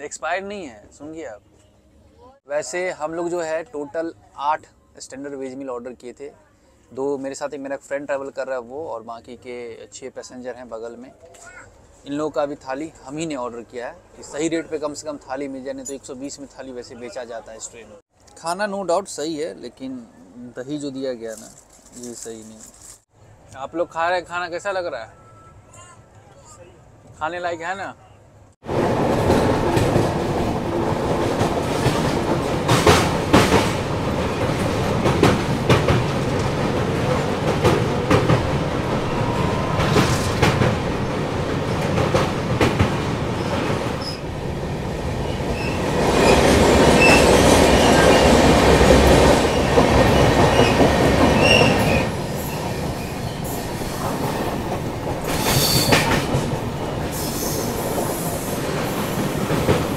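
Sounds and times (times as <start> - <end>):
train rumble and rush: 28.4 - 59.9
wheels clacking over rail joints: 28.7 - 59.9.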